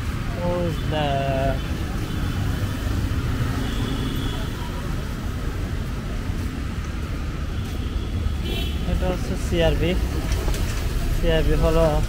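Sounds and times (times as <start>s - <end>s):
street ambience rumble: 0.0s - 12.0s.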